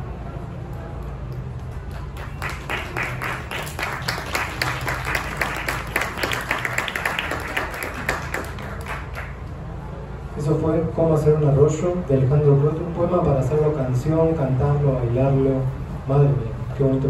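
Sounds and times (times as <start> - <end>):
audience applauding: 1.8 - 9.4.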